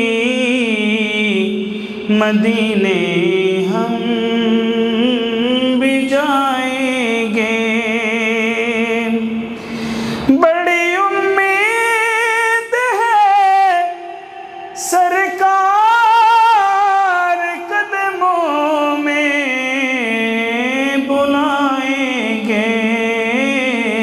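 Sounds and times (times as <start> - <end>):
person singing devotional song: 0.0 - 24.0.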